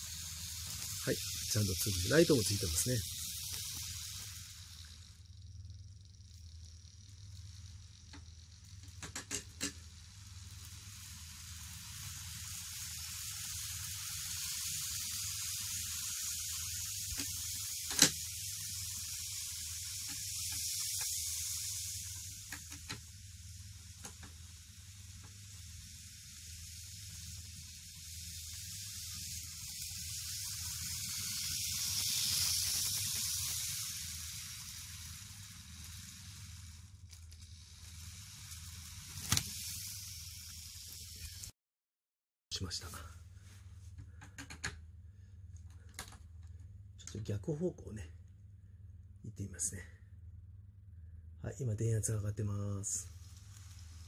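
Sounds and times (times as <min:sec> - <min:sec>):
model train motor and wheels hissing: 0:00.0 - 0:41.5, 0:51.2 - 0:54.0
small clicks: 0:00.2 - 0:11.0, 0:16.0 - 0:23.2, 0:24.0 - 0:25.6, 0:31.0 - 0:41.5, 0:44.0 - 0:44.8, 0:45.5 - 0:47.2.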